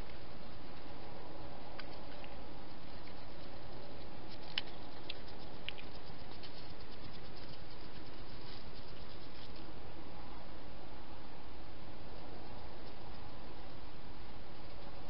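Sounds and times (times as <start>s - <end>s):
sharp ticks: 0.0s - 9.7s
hedgehog rustling in dry grass: 0.0s - 10.0s
steady hiss: 0.0s - 15.0s.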